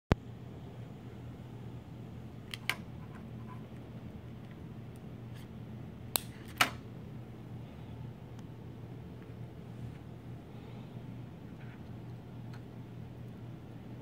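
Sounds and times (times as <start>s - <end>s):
low steady hum: 0.1s - 14.0s
wiring connectors clicking: 2.4s - 2.9s, 6.1s - 6.8s.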